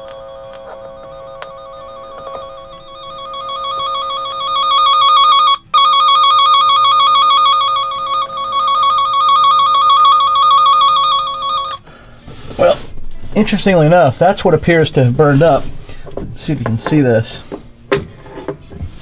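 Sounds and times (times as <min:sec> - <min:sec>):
warbling electronic tone: 0:00.0 - 0:11.8.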